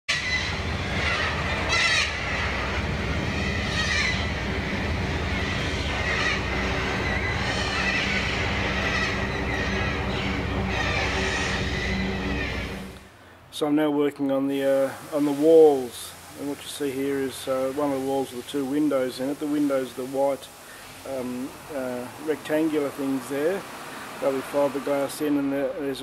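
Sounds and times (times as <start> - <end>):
high wavering bird calls: 0.1 - 13.1
steady low hum: 0.1 - 13.6.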